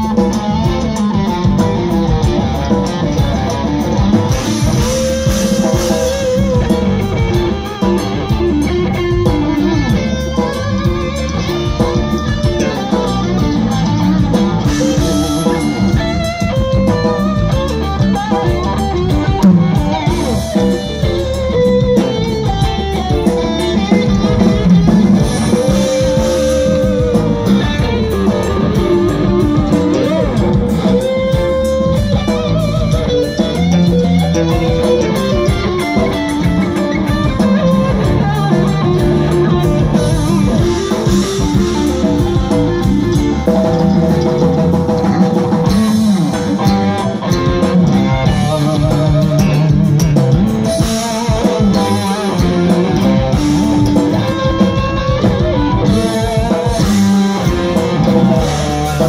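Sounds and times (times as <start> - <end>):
electric guitar bent notes: 0.0 - 59.0
rock band playing: 0.0 - 59.0.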